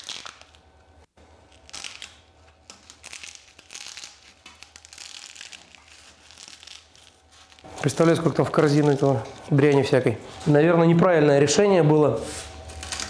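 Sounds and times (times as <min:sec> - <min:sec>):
cloth rustling and crinkling: 0:02.5 - 0:10.6.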